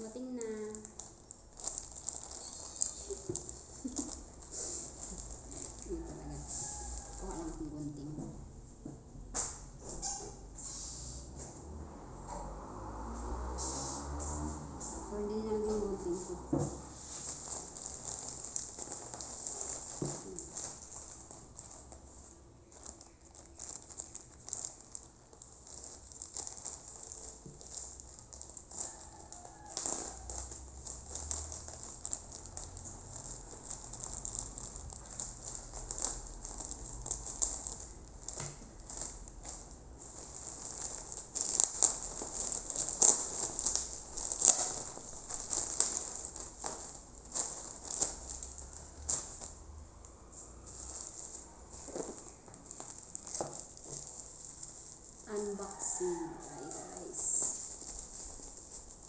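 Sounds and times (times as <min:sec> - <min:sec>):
plastic mailer crinkling: 0:00.0 - 0:08.1, 0:17.0 - 0:59.0
bubble-wrapped parcel handled: 0:00.0 - 0:08.6, 0:09.3 - 0:11.8, 0:12.4 - 0:59.0
scissors cutting plastic: 0:22.7 - 0:49.5.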